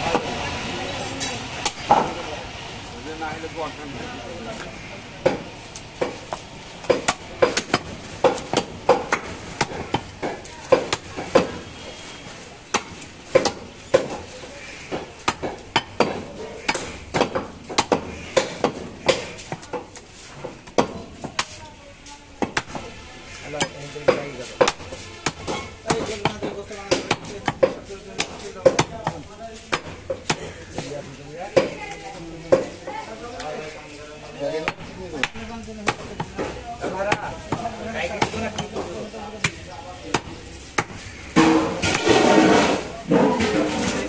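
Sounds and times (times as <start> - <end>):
cleaver chopping meat on wood: 5.2 - 12.0, 12.6 - 21.6, 22.4 - 22.9, 23.6 - 31.8, 34.6 - 42.2.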